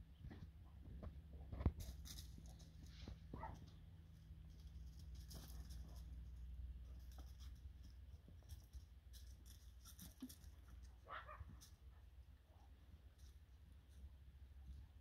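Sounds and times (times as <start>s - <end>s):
low steady rumble: 0.0s - 15.0s
paws scratching on gravel: 1.6s - 12.0s.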